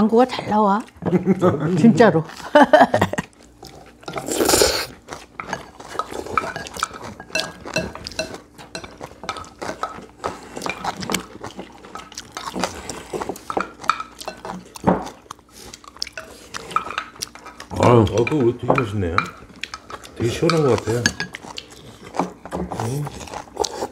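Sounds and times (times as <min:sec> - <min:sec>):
spoons clinking against bowls: 0:05.4 - 0:10.0, 0:13.4 - 0:14.6, 0:16.1 - 0:21.8.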